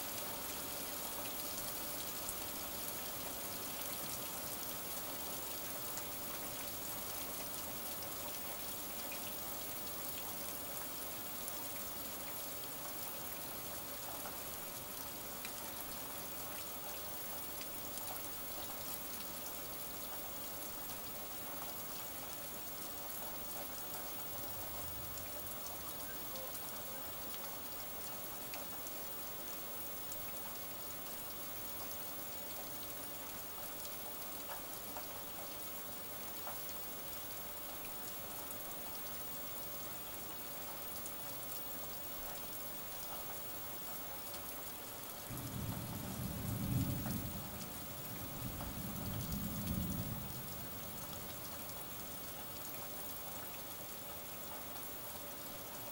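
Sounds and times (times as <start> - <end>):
steady rain falling: 0.0 - 55.9
raindrops ticking: 23.1 - 28.9, 32.6 - 35.6, 45.3 - 53.6
thunder rumble: 45.3 - 51.3.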